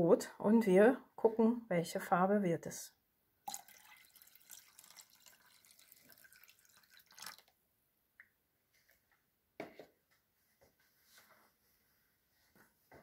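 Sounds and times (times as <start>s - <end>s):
foaming liquid splashing: 3.5s - 7.5s.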